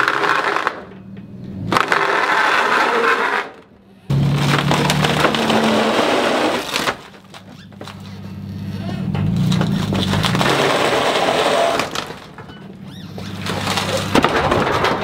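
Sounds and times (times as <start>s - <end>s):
grinding: 0.0s - 15.0s
plywood cracking and splintering: 1.7s - 8.2s, 9.1s - 15.0s
truck engine running under strain: 3.8s - 14.8s.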